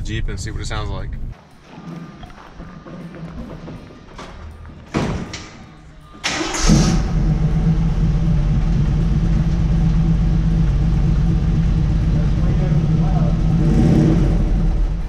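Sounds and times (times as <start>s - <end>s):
engine cranking and starting: 6.2s - 12.1s
engine idling: 6.3s - 15.0s.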